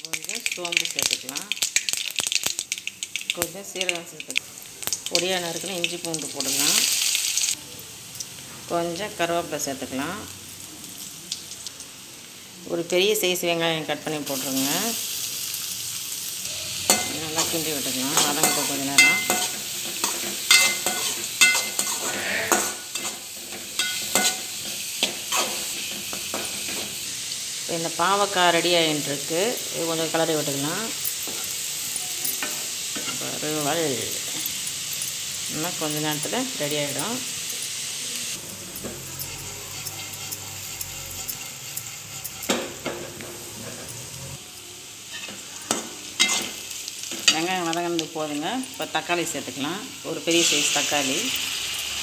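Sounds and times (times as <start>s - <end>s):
onions sizzling in oil: 0.0s - 52.0s
spatula scraping a pan: 16.9s - 27.0s, 38.8s - 44.3s, 45.1s - 46.6s.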